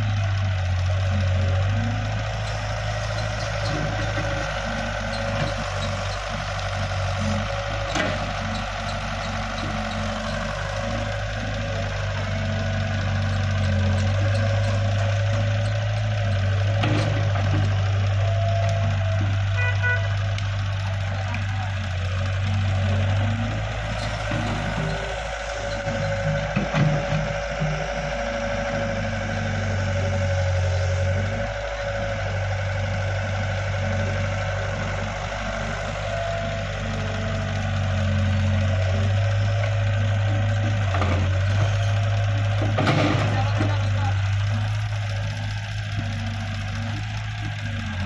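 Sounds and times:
excavator diesel engine running: 0.0 - 48.0
tractor idling: 0.0 - 48.0.

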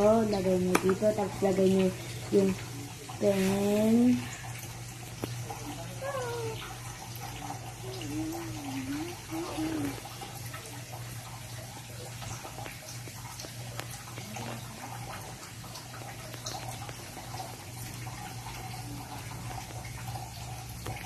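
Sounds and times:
low hum and hiss of room noise: 0.0 - 21.0.

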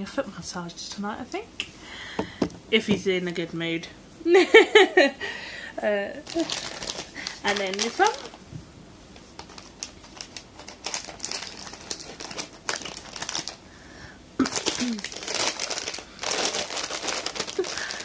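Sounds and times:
packaging crinkling: 6.2 - 8.4, 9.2 - 13.6, 14.4 - 18.0.

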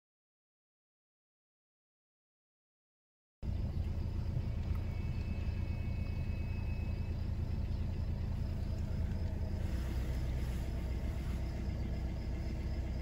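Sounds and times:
car driving on gravel: 3.4 - 13.0
faint hiss: 8.2 - 12.6.

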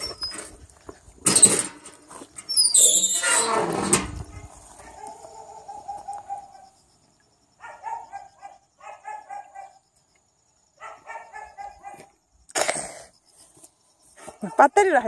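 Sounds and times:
dog yelping: 7.6 - 9.8, 10.8 - 12.1.

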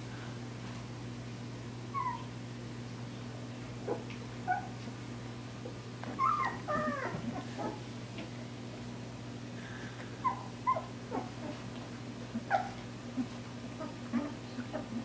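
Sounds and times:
steady low hum: 0.0 - 15.0
puppies whining and squeaking: 1.9 - 2.4, 3.9 - 4.8, 6.0 - 7.8, 10.2 - 11.6, 12.3 - 15.0.

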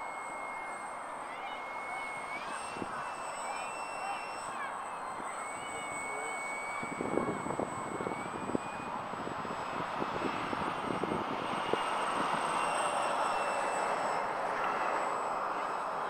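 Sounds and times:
model plane motor whining: 0.0 - 16.0
wind buffeting microphone: 6.8 - 12.6.

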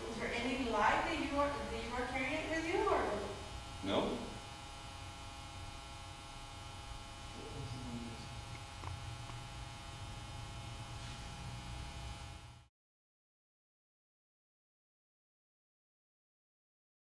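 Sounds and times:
electrical mains hum and hiss: 0.0 - 12.7.

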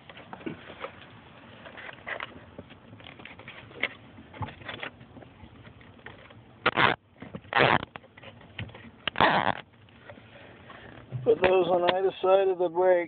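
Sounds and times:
zip ties rustling and clicking: 6.1 - 8.1, 9.1 - 9.6
zip ties ratcheting tight: 6.7 - 7.9, 9.1 - 9.6.

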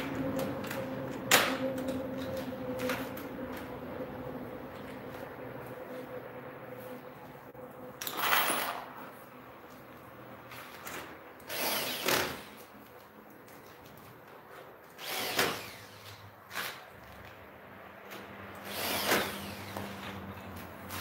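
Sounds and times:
electric drill driving screws: 11.4 - 12.7, 14.8 - 16.8, 18.5 - 20.2.

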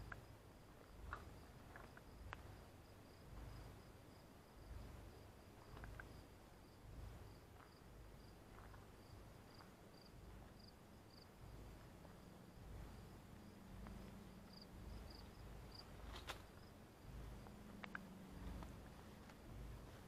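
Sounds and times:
faint cricket chirping: 0.0 - 20.0
low rumble: 0.0 - 20.0.

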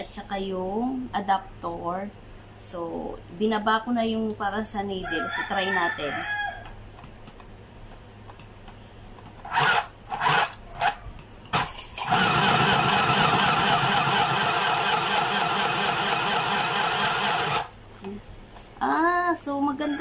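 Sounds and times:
sewing machine running: 9.4 - 11.0, 12.0 - 17.7.

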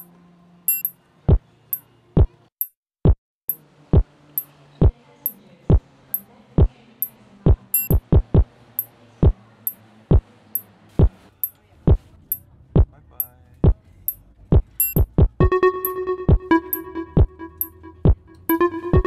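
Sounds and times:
electronic music: 14.8 - 19.0.

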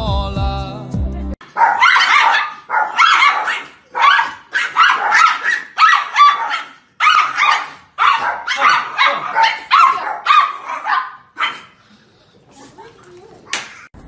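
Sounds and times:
small dogs barking: 1.4 - 11.8.

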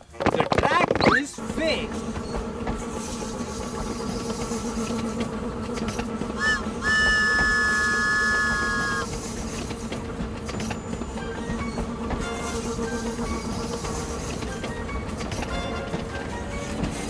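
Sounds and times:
train running rumble: 0.0 - 17.0
toy train whistle: 6.3 - 9.1.

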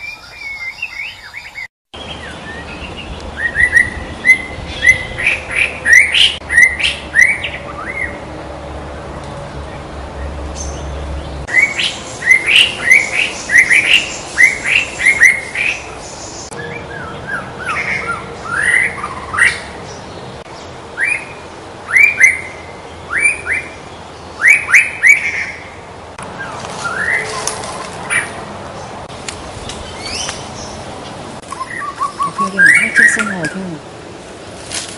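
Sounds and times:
bird singing whistled notes: 0.0 - 8.2, 31.5 - 33.6.

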